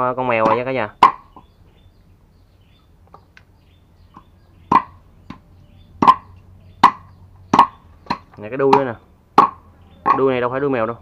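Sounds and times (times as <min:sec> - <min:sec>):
cleaver chopping meat: 0:00.4 - 0:01.2, 0:06.0 - 0:10.2.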